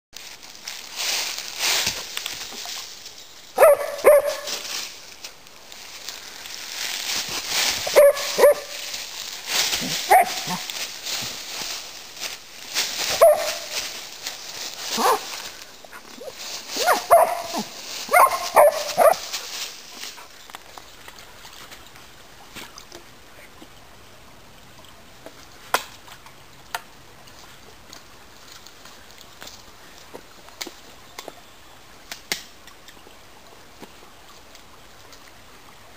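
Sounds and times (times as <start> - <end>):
dry leaves crunching underfoot: 0.2 - 20.8
stream trickling: 0.2 - 35.9
dog barking: 3.6 - 4.6, 7.9 - 8.8, 10.1 - 10.7, 13.1 - 13.8, 15.0 - 15.3, 16.8 - 19.3.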